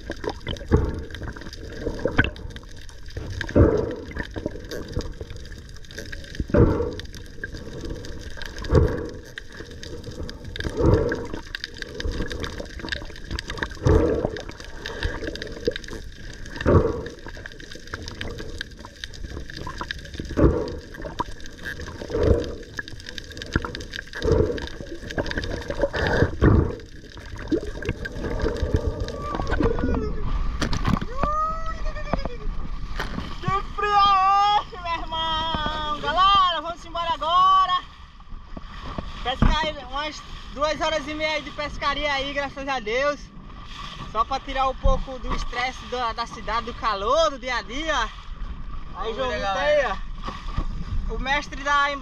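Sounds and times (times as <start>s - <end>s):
muffled underwater water noise: 0.0s - 52.0s.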